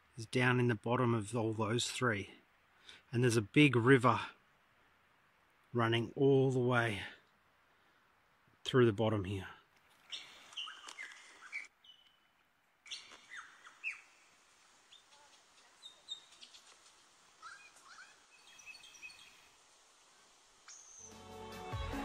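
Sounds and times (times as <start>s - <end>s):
birds chirping and whistling: 10.1s - 12.2s, 12.9s - 14.3s, 14.9s - 19.6s, 20.7s - 21.3s
music: 21.0s - 22.0s.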